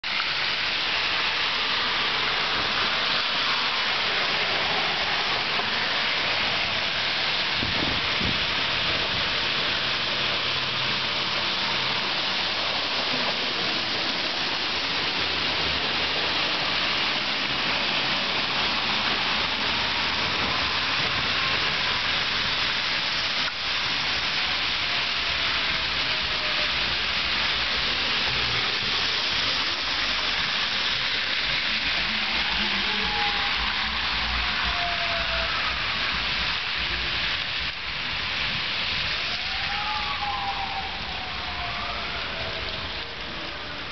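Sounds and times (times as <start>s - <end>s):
tyres hissing on wet street: 0.0s - 43.9s.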